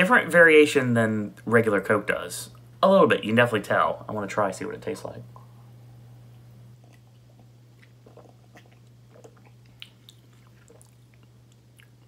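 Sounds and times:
low hum: 0.4s - 12.0s
man sipping and swallowing: 6.3s - 12.0s
lip and tongue clicks: 6.8s - 12.0s.

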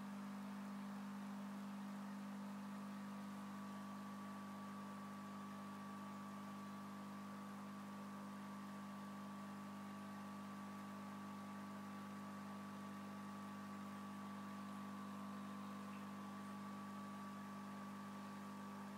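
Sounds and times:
electrical hum: 0.0s - 18.9s.

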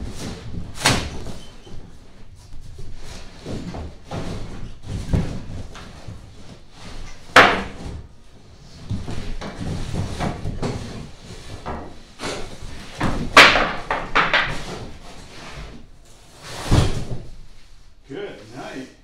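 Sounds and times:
cardboard scraping and rubbing: 14.4s - 17.3s.

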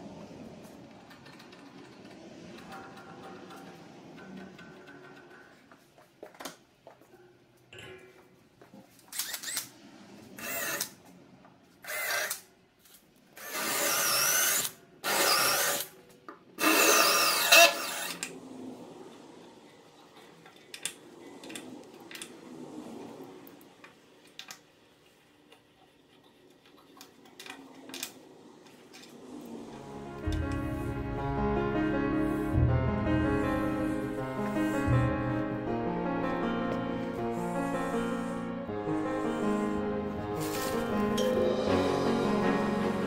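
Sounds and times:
faint clicks and scraping: 0.1s - 13.3s, 18.0s - 31.0s
electric drill boring wood: 10.4s - 10.9s, 11.9s - 12.4s, 13.4s - 15.9s, 16.6s - 18.3s.

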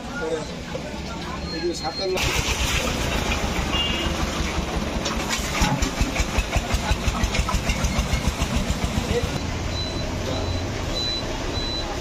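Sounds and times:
engine running with rapid beat: 4.2s - 9.4s.

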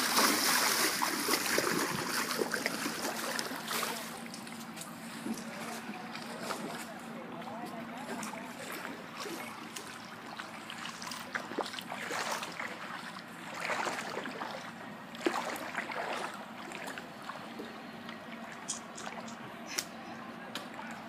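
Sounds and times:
small water splashes: 0.0s - 4.4s, 8.0s - 19.4s
seawater lapping and sloshing: 0.0s - 19.9s.

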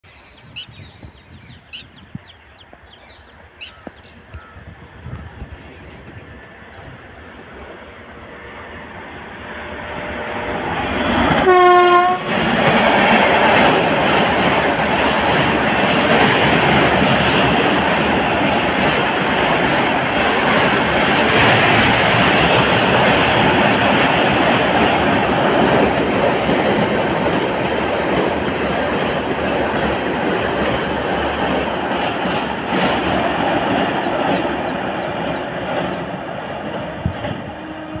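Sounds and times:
train rumbling over bridge: 0.0s - 38.0s
train horn blast: 8.0s - 10.8s, 11.4s - 12.4s, 37.4s - 38.0s.

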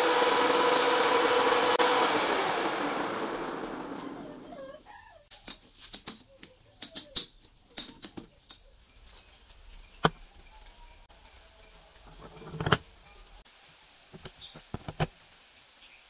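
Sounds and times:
lathe chuck spinning: 0.0s - 4.4s.

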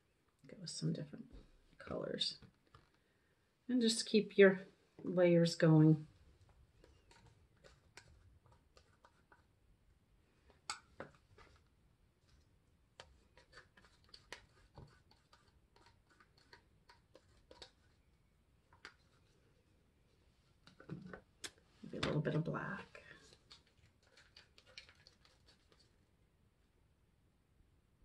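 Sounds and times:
stir stick tapping plastic cups: 6.6s - 9.5s, 10.4s - 11.7s, 12.3s - 19.6s, 23.2s - 25.9s.

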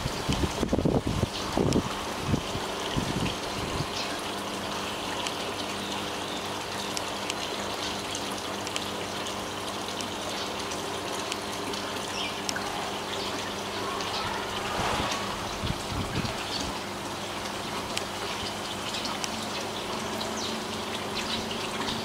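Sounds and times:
water pouring into pond: 0.0s - 22.0s
low hum: 12.4s - 17.7s.

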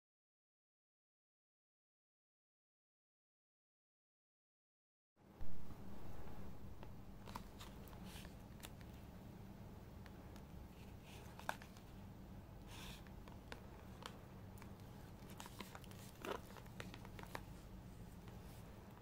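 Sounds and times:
low steady hum: 5.2s - 19.0s
plastic tray clicks and crinkles: 13.3s - 17.5s.

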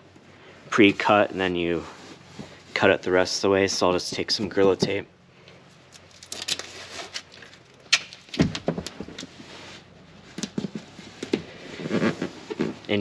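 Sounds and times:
tape pulled off roll and torn: 5.8s - 12.9s
rustling and tapping: 7.3s - 9.6s, 10.2s - 13.0s.

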